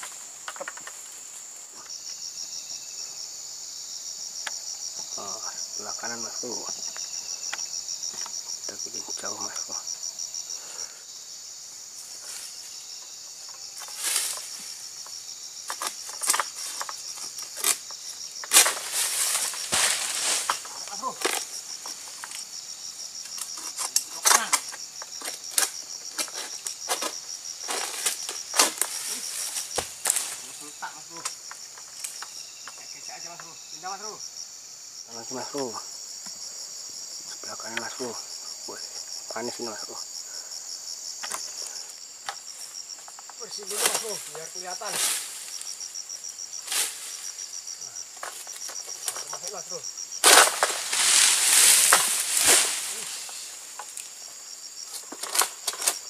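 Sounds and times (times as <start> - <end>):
insects chirring: 0.0 - 56.0
pole rustling and scraping: 13.4 - 22.5, 50.2 - 54.2.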